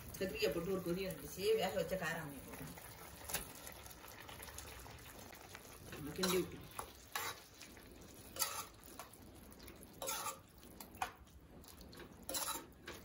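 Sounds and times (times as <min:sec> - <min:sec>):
metal ladle scraping pot: 0:06.0 - 0:09.2, 0:09.9 - 0:11.2, 0:12.0 - 0:13.0.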